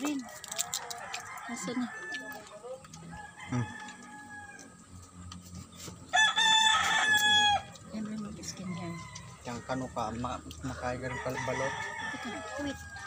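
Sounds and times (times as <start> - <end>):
rooster crowing: 0.2 - 4.9, 6.1 - 7.8, 8.5 - 13.0
faint rooster call: 3.4 - 4.8.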